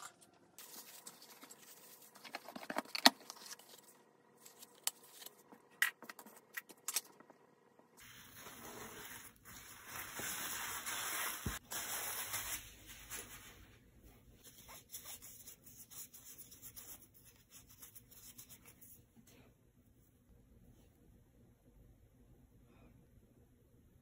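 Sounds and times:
paper towel rustling: 8.0 - 15.2.

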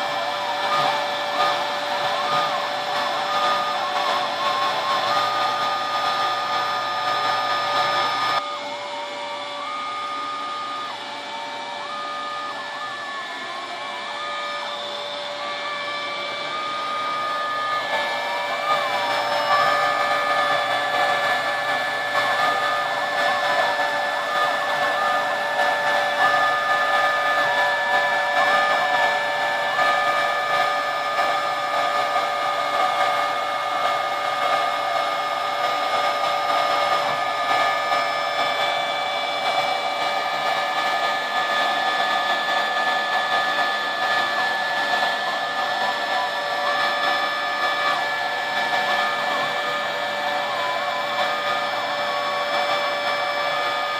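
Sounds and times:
axis drive motor tone: 0.0 - 53.9
router bit cutting wood: 0.0 - 53.9
router motor whine: 0.0 - 53.9.

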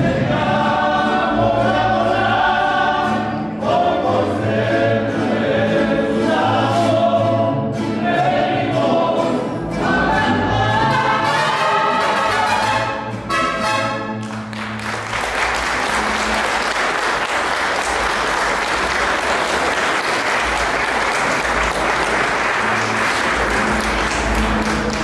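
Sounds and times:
choir singing: 0.0 - 13.9
congregation applauding: 13.7 - 25.0.

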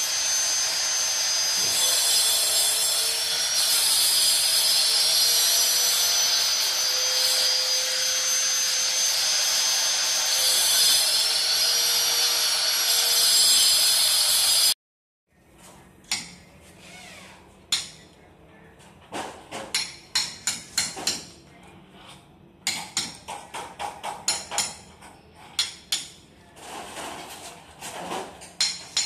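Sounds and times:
angle grinder cutting concrete: 0.0 - 14.8
hammer striking chisel on concrete: 19.6 - 21.4, 22.6 - 26.2.

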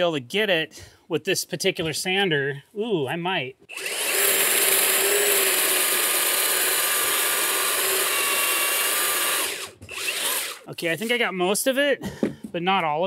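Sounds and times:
belt sander running: 3.7 - 11.1.

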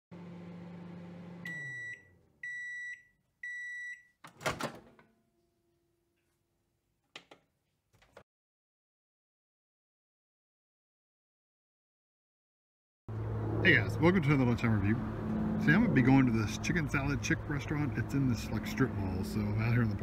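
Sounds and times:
microwave oven humming: 0.1 - 2.7
microwave beeps: 1.4 - 4.2
microwave door clunking open: 4.3 - 5.1.

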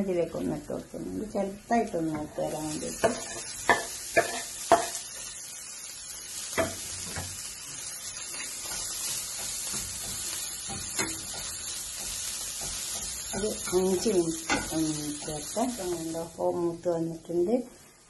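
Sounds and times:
chicken sizzling in pan: 0.0 - 18.0
metal spoon stirring in pan: 2.8 - 5.4, 6.2 - 16.2
wooden board knocking on pan: 6.6 - 7.3.

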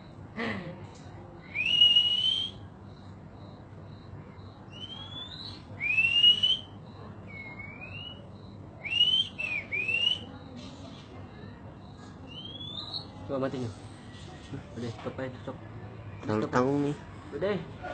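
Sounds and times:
songbird whistling: 1.4 - 2.6, 4.7 - 10.3, 12.3 - 13.1.

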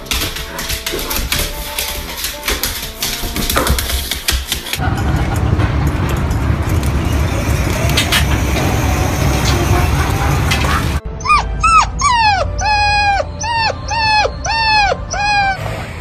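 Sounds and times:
outdoor street noise: 4.8 - 16.0
puppy howling: 10.7 - 15.7.

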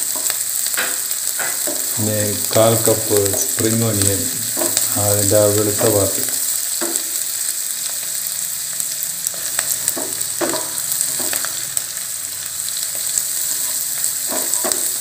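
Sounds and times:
vegetables sizzling in oil: 0.0 - 15.0
spatula scraping and knocking pan: 0.1 - 2.0, 4.4 - 5.0, 6.8 - 7.1, 9.3 - 11.6, 13.0 - 15.0.

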